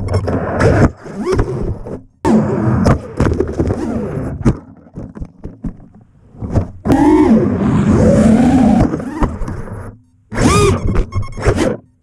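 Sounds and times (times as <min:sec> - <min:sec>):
quadcopter motors whining: 0:06.9 - 0:11.8.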